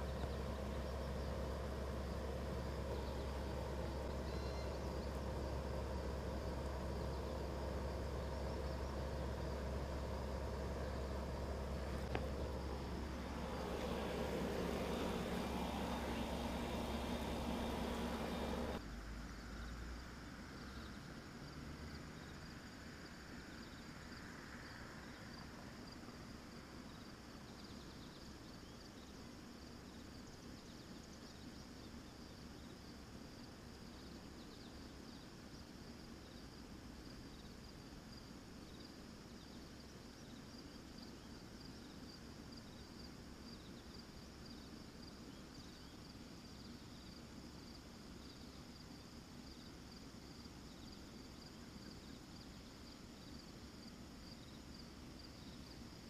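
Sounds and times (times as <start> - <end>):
crickets and insects chirping: 0.0 - 56.0
low outdoor hum: 0.0 - 56.0.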